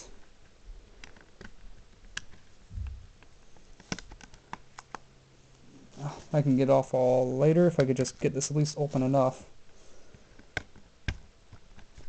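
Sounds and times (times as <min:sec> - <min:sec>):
soft low thump: 0:02.7 - 0:03.2.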